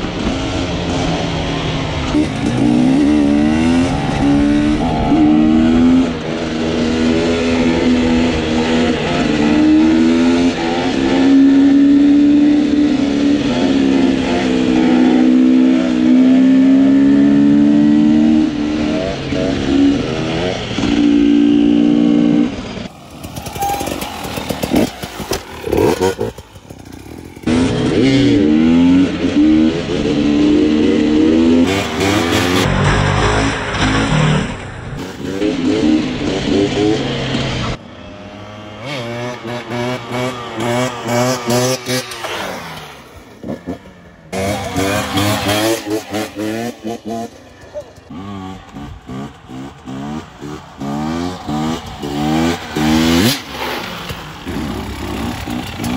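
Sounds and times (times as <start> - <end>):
dirt bike engines revving: 0.0 - 55.9.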